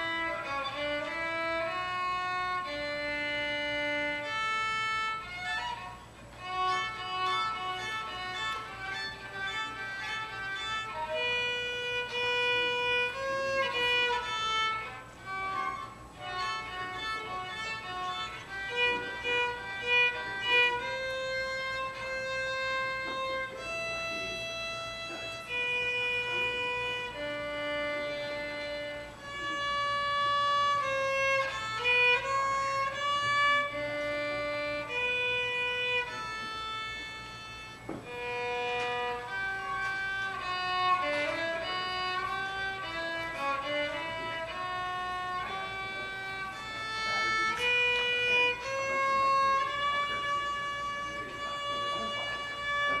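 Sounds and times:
violin playing a melody: 0.0 - 53.0.

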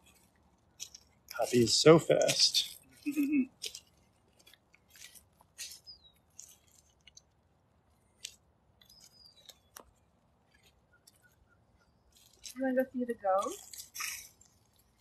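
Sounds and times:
footsteps crunching on dry leaves: 4.4 - 6.8
high bird chirps: 5.6 - 6.6, 8.8 - 9.7.

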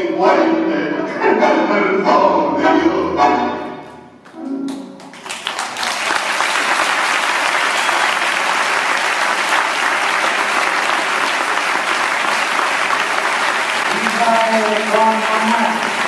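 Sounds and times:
tango music: 0.0 - 5.2
audience applauding: 4.2 - 16.0.

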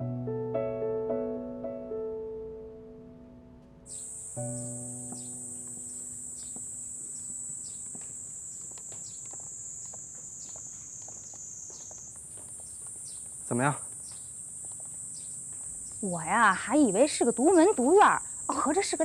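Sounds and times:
soft piano music: 0.0 - 7.7
birds chirping: 3.9 - 19.0
insects droning: 3.9 - 19.0.

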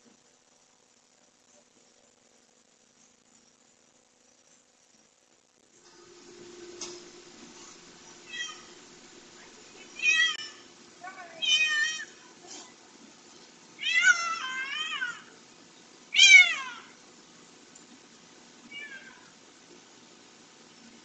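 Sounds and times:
cat meowing in distress: 13.8 - 15.3.

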